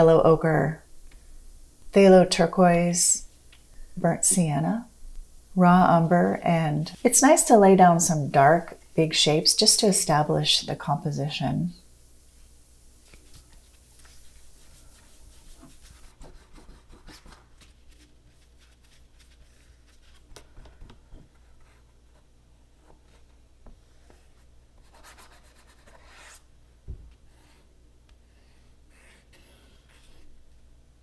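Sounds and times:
paintbrush scratching on paper: 13.8s - 20.2s, 24.8s - 26.5s.

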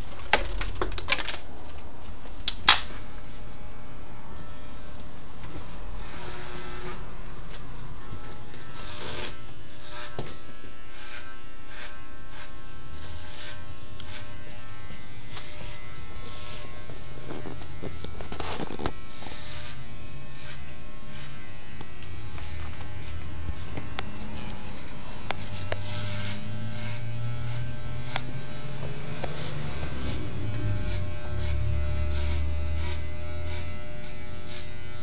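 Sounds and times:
electric hair clippers buzzing: 2.4s - 35.0s
clippers rasping through hair: 6.0s - 35.0s.

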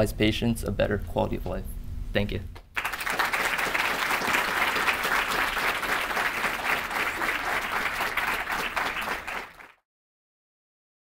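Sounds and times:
audience applauding: 2.8s - 9.8s.

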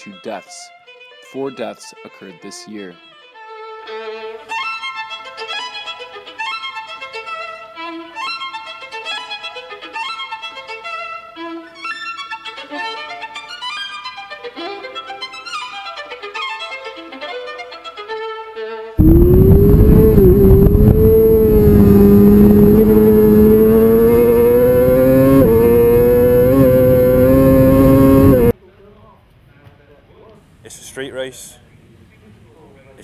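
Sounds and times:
violin melody: 0.8s - 27.5s
racing motorcycle engine: 19.0s - 28.5s.

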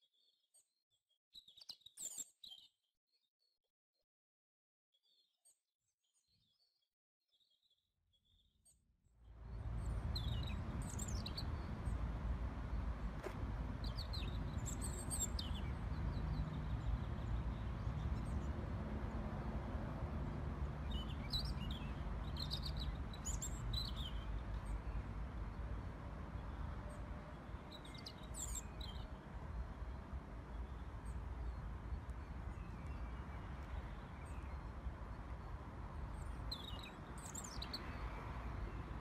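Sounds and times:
steady low rumble: 9.3s - 27.2s
birds chirping: 9.4s - 39.0s.

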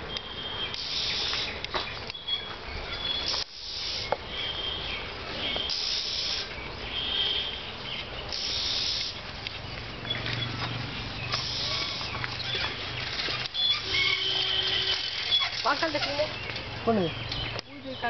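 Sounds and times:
high hissing bursts: 0.7s - 1.7s, 3.2s - 4.5s, 5.3s - 9.3s, 11.3s - 12.4s.

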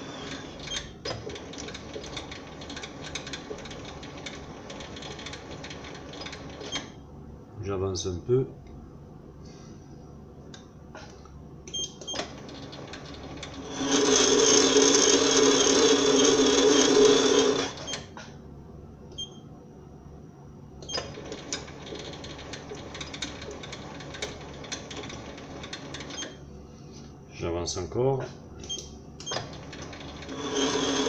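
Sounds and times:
lathe whine: 0.0s - 3.1s, 12.3s - 18.0s, 29.3s - 31.0s.

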